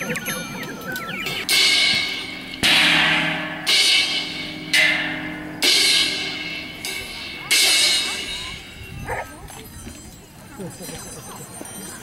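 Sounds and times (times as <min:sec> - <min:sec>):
cymbal crashes: 0:01.4 - 0:08.6.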